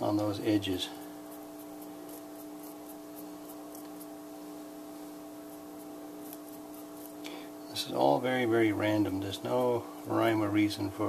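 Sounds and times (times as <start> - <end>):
light scratching of chalk powder: 0.0 - 4.3, 5.1 - 7.2
steady low hum: 0.0 - 11.0.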